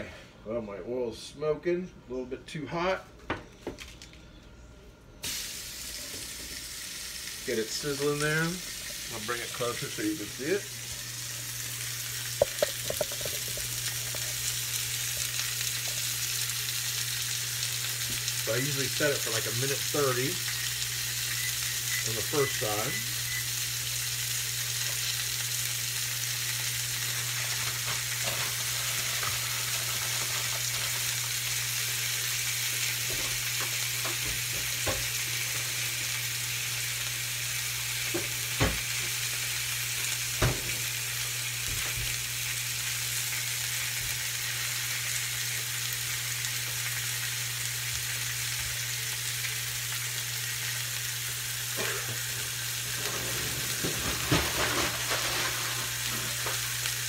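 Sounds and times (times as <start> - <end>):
steak sizzling in oil: 5.2 - 57.0.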